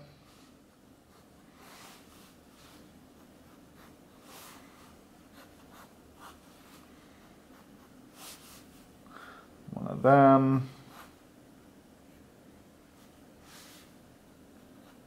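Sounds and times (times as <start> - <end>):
pen scratching on paper: 3.1 - 6.5, 7.4 - 8.4.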